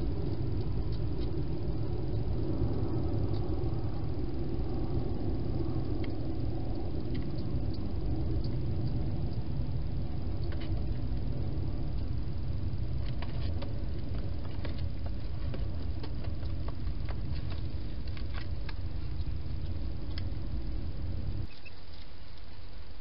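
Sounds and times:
steady low rumble: 0.0s - 23.0s.

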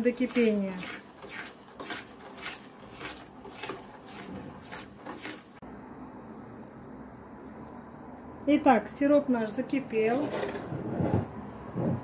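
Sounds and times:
spatula stirring sugar in pan: 0.0s - 5.6s.

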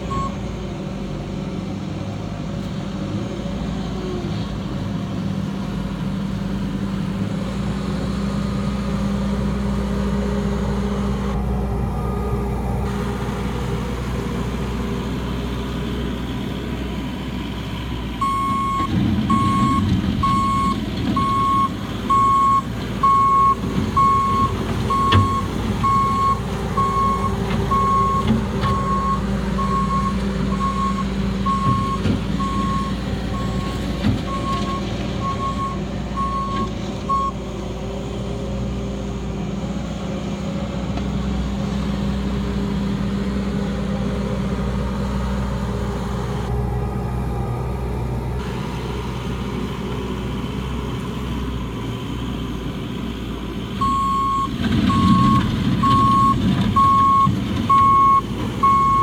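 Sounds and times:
engine running: 0.0s - 59.0s
reversing alarm beeps: 0.1s - 0.4s, 18.2s - 37.4s, 53.8s - 59.0s.

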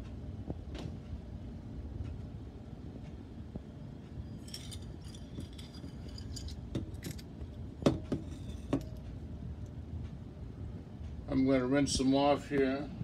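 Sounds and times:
coins clinking in ceramic bowl: 4.4s - 7.2s.

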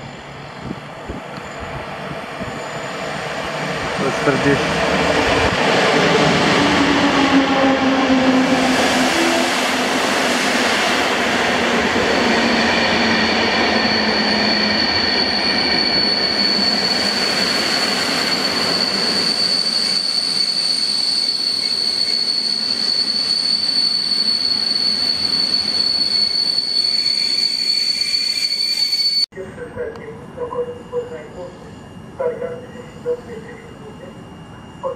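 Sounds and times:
high-pitched brake squeal: 0.0s - 3.3s, 12.1s - 29.3s, 30.4s - 34.9s
train hum slowing: 0.0s - 26.4s.

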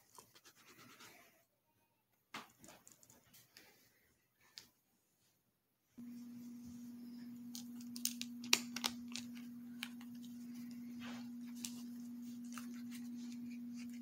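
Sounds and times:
steady low hum: 6.0s - 14.0s.

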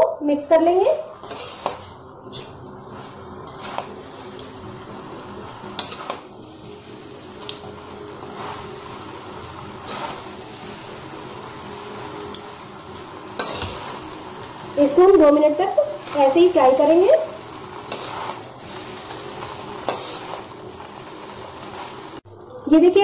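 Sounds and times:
stir-frying hiss: 0.0s - 23.0s
spatula knocking and scraping pan: 1.2s - 2.6s, 3.4s - 4.0s, 5.7s - 6.2s, 13.4s - 14.0s, 17.8s - 18.4s, 19.0s - 20.5s.

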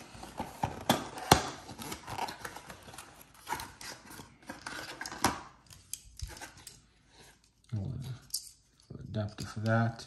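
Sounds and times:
cardboard rustling: 0.0s - 5.6s.

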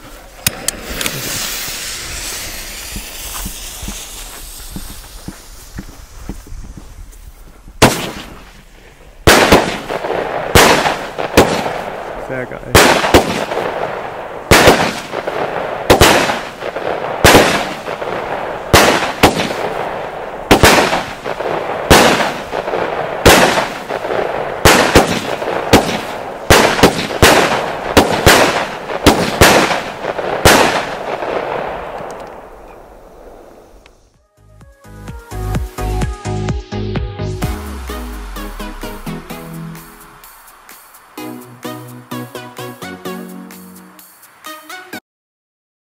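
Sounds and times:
fireworks shots: 0.0s - 34.2s
steady noise: 0.0s - 34.2s, 37.2s - 44.5s.

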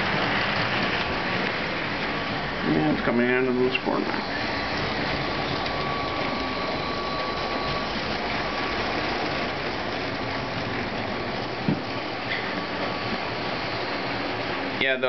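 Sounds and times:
toy train wheels rolling: 0.0s - 15.0s
small electric motor whirring: 4.0s - 14.4s.

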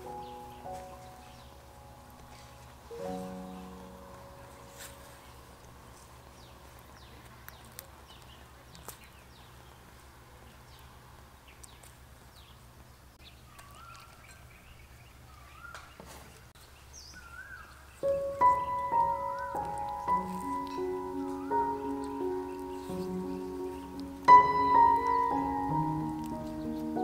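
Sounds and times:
music: 0.0s - 5.3s, 18.0s - 27.0s
birds chirping and calling: 0.0s - 9.8s, 13.2s - 27.0s.

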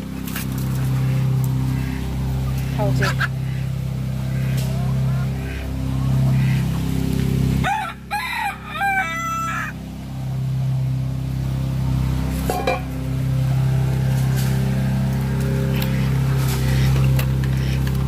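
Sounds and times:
steady low hum: 0.0s - 18.0s
rooster crowing: 7.6s - 9.8s.

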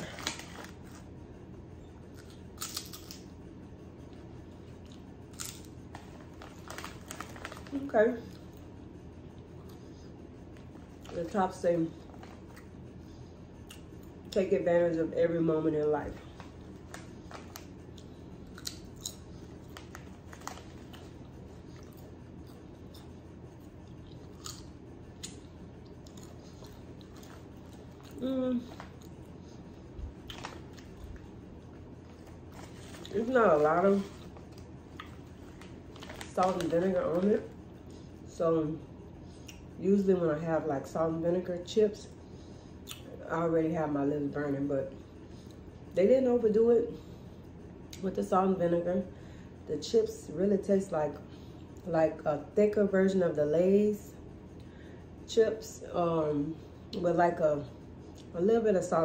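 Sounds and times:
chip bag crinkling: 0.0s - 1.1s, 5.3s - 8.4s, 16.0s - 22.2s, 30.2s - 37.5s
low room hum: 0.0s - 59.0s.

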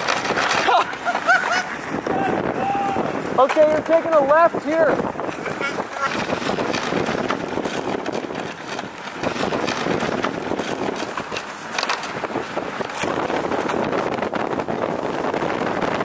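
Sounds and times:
vehicle driving over snow: 0.0s - 16.0s
wind on microphone: 0.0s - 16.0s.

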